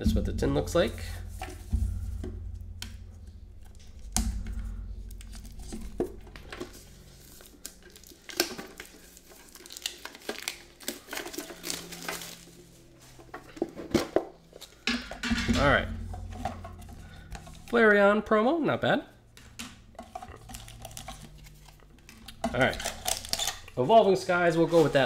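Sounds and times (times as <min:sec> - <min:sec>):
metal tin knocks: 0:00.0 - 0:07.1, 0:14.9 - 0:17.8, 0:19.4 - 0:23.8
plastic wrap tearing and crinkling: 0:06.3 - 0:14.8, 0:20.2 - 0:23.8.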